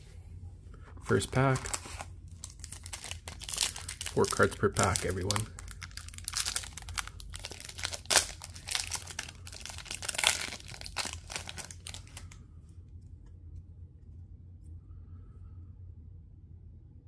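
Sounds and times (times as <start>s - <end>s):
foil wrapper crinkling and tearing: 1.1s - 12.4s.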